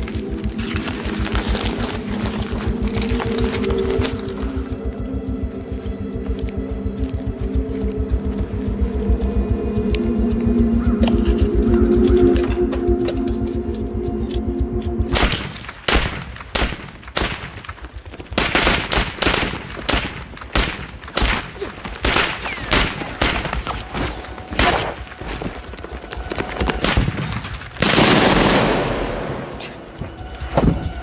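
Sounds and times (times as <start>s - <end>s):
held music tone: 0.0s - 15.8s.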